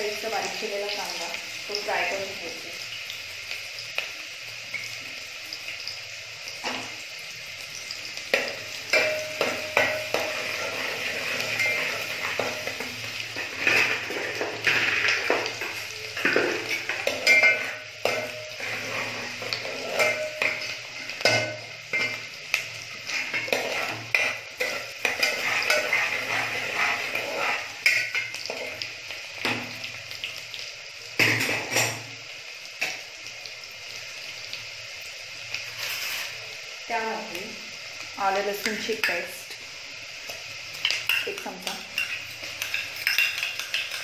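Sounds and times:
food sizzling in oil: 0:00.0 - 0:44.0
metal spoon scraping a pot: 0:08.4 - 0:22.2, 0:23.0 - 0:28.7, 0:35.7 - 0:36.4, 0:41.1 - 0:44.0.

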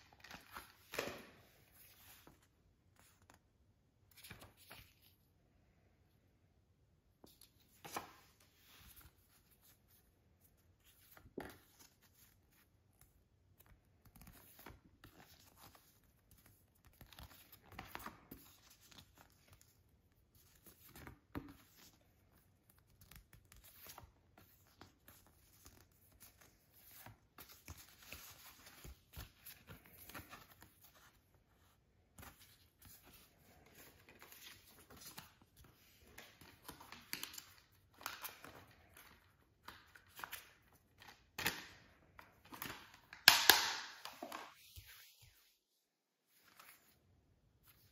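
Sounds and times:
cards rustling and sliding: 0:00.0 - 0:03.4, 0:20.5 - 0:45.4.

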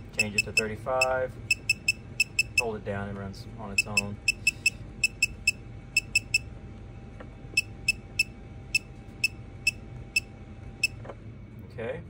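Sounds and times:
short high electronic beeps: 0:03.8 - 0:06.5.

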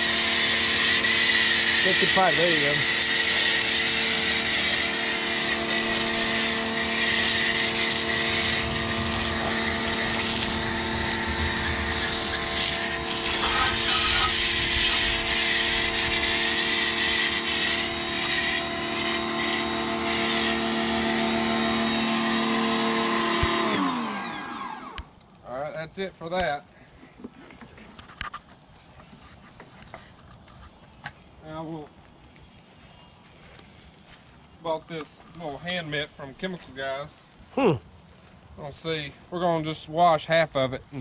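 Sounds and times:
pressure washer motor and pump: 0:00.0 - 0:25.1
foam cannon spraying hiss: 0:05.1 - 0:15.4.

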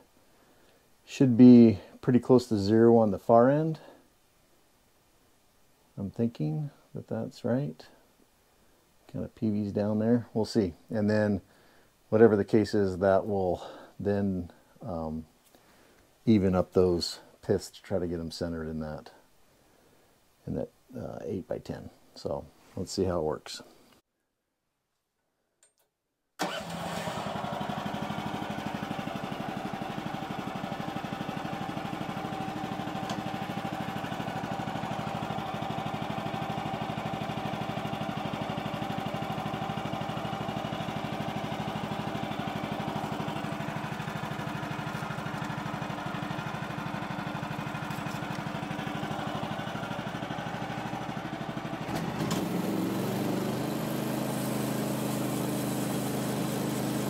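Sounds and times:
sawmill engine running: 0:26.4 - 0:57.0.

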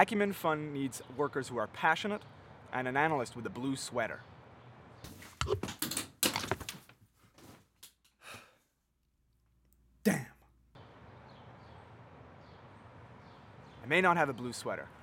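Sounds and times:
clothes rustling: 0:05.1 - 0:08.0
clothes and hangers clattering: 0:05.1 - 0:08.1.

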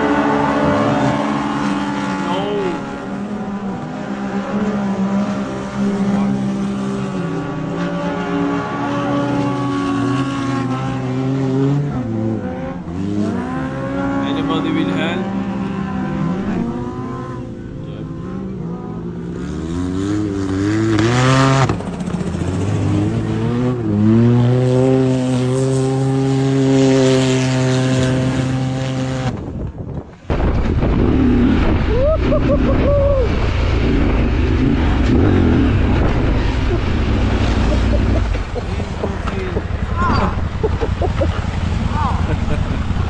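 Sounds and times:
utv engine revving: 0:00.0 - 0:43.0
steady low rumble: 0:30.2 - 0:43.0.

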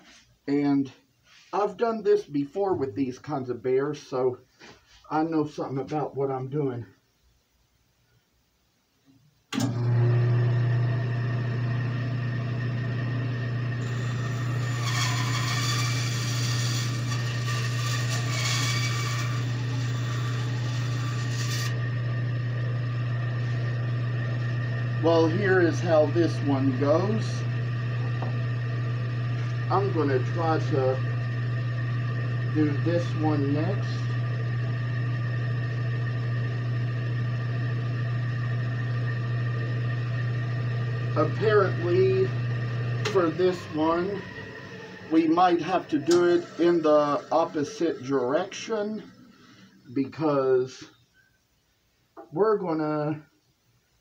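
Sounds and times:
bandsaw cutting wood: 0:12.6 - 0:28.5, 0:29.3 - 0:34.7, 0:41.0 - 0:48.7
steady low hum: 0:21.8 - 0:50.6.

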